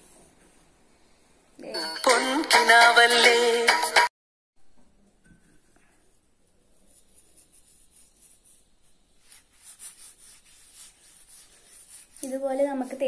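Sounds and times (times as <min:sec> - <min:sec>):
hand rubbing salt on mango: 0:06.8 - 0:13.0.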